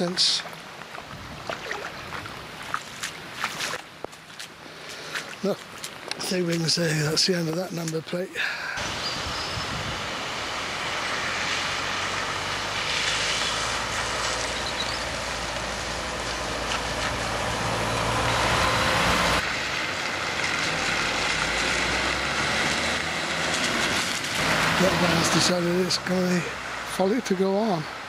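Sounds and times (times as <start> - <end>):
tyres swishing through water: 0.0 - 28.0
vehicle engines running: 5.4 - 27.3.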